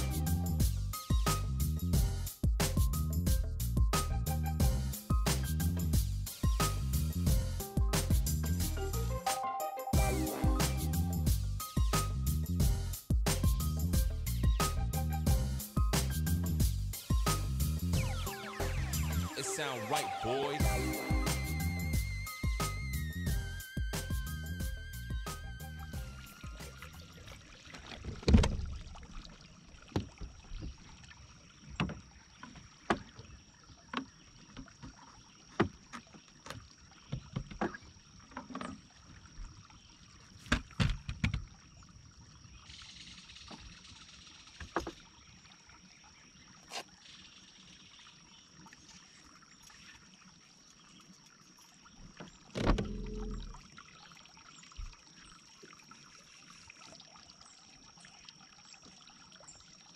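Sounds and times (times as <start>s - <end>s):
faint high-pitched tone: 18.1s - 23.1s
light water splashes: 26.2s - 59.9s.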